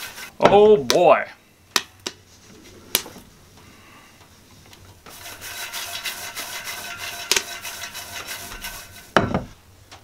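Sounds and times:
popcorn rustling in metal pot: 5.0 - 9.2.

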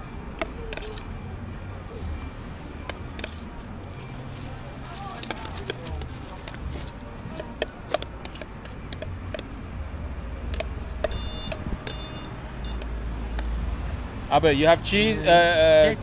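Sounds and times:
spoon tapping plastic tub: 7.4 - 9.5, 10.5 - 12.0.

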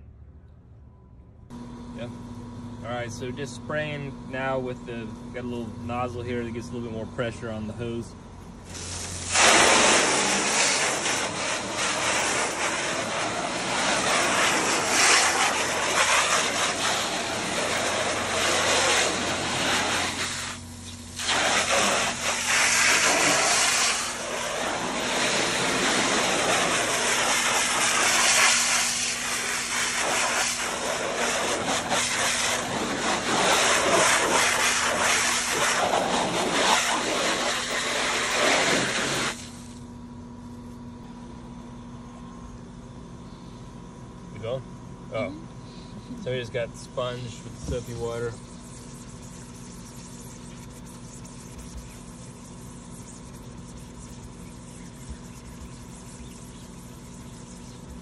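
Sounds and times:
hose nozzle spraying water: 8.6 - 39.8, 47.3 - 58.0.

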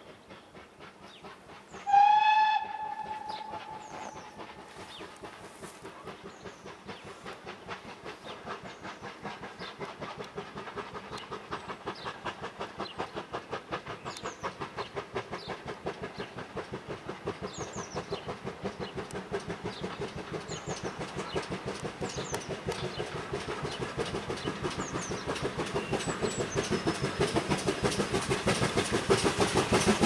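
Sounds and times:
steam locomotive exhaust beats: 0.0 - 30.0
birds chirping: 2.8 - 5.4.

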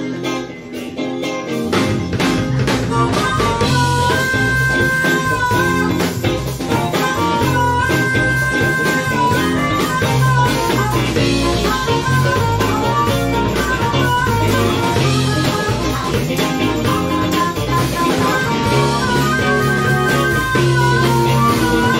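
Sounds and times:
harmonica chords: 0.0 - 21.9
live blues band: 0.0 - 21.9.

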